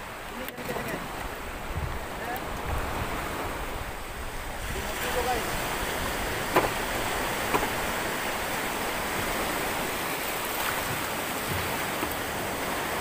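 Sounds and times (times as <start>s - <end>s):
surf breaking around a boat: 0.0s - 13.0s
knock on a boat: 6.4s - 7.9s, 10.8s - 12.1s.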